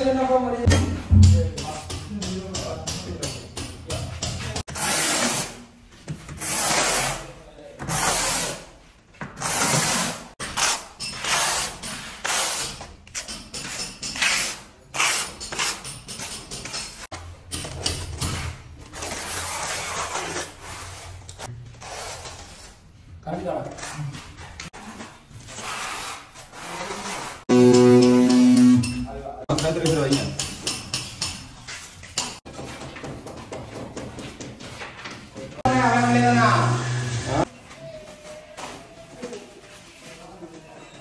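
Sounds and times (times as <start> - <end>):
trowel scraping tile adhesive: 6.3 - 8.7, 9.3 - 17.1, 18.2 - 22.8.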